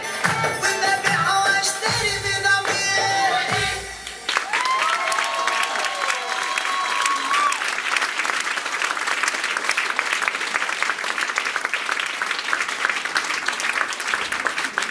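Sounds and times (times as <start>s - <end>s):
audience applauding: 2.5s - 14.9s.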